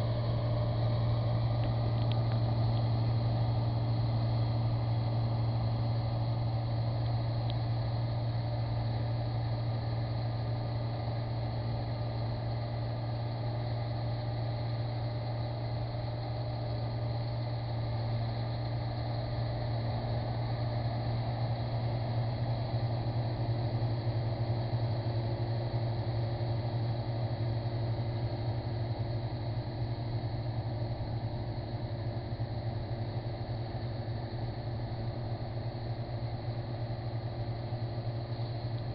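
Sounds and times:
combine harvester engine humming: 0:00.0 - 0:38.9.

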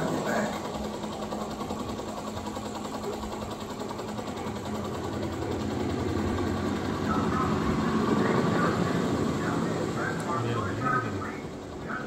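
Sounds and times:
helicopter rotor chop: 0:00.0 - 0:12.0
steady engine hum: 0:00.0 - 0:12.0.

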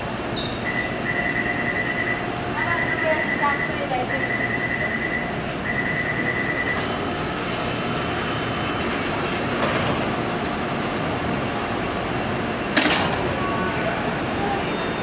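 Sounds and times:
standing train hum: 0:00.0 - 0:15.0
door closing warning beeps: 0:00.4 - 0:02.2, 0:02.8 - 0:07.0.

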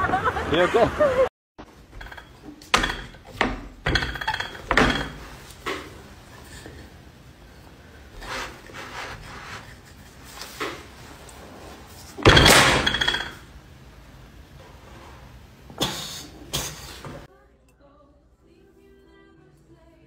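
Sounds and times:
rolling pin knocking and rolling: 0:01.6 - 0:06.0, 0:12.1 - 0:13.5.

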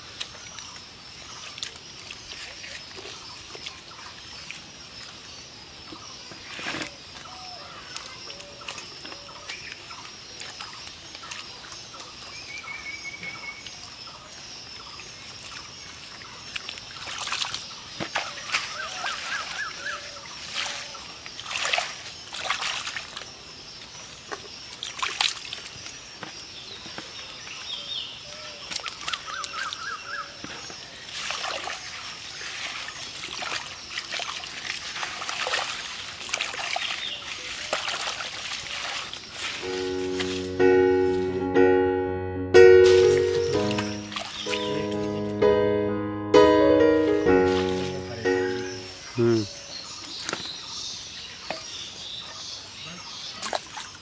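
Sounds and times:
water splashing: 0:15.3 - 0:23.4, 0:24.2 - 0:26.0, 0:28.6 - 0:41.3, 0:42.8 - 0:45.4, 0:47.2 - 0:49.4, 0:53.3 - 0:54.0
hands sloshing through mud: 0:16.4 - 0:23.4, 0:28.6 - 0:40.5, 0:42.9 - 0:45.1, 0:53.2 - 0:54.0.

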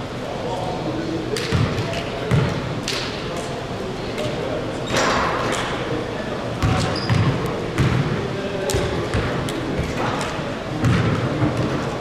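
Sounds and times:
basketball bouncing on gym floor: 0:01.4 - 0:02.6, 0:06.6 - 0:08.1, 0:08.7 - 0:09.4, 0:10.8 - 0:11.8.

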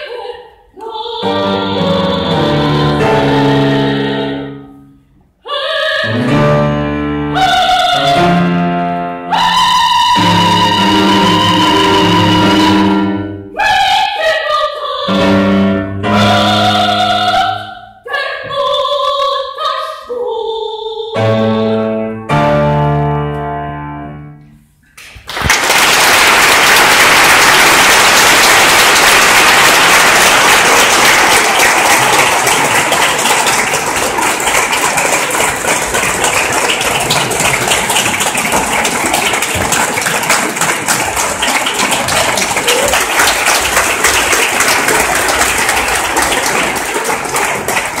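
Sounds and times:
person singing with piano: 0:00.0 - 0:04.8, 0:05.5 - 0:24.0
audience applause: 0:25.2 - 0:48.0.

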